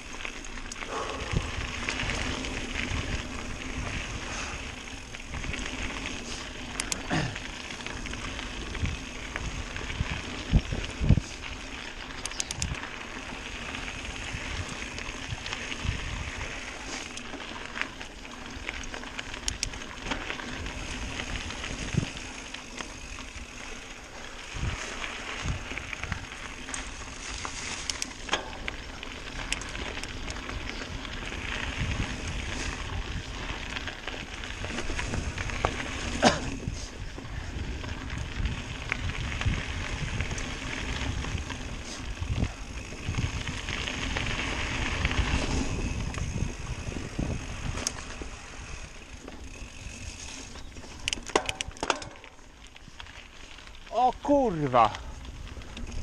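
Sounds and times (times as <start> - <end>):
bike tyres crunching on dirt: 0.0 - 56.0
bike knocks and rattles: 27.5 - 28.9, 49.1 - 52.4.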